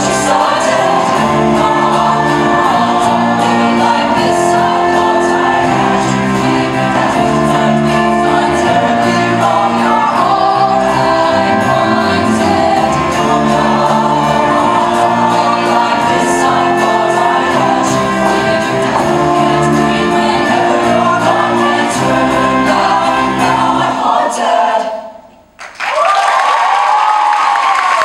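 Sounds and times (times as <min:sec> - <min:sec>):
mixed choir singing: 0:00.0 - 0:25.3
choir accompaniment music: 0:00.0 - 0:25.6.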